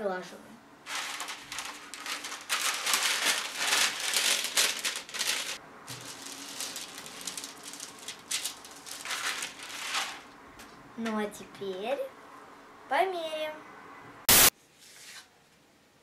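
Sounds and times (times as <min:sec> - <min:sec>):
iron scraping over paper: 0:00.9 - 0:10.3
paper rustling and crinkling: 0:00.9 - 0:10.3.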